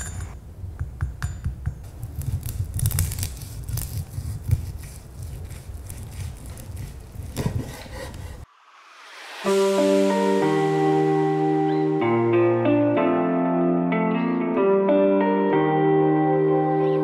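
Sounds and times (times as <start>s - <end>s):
knife cutting crispy skin: 2.0s - 7.8s.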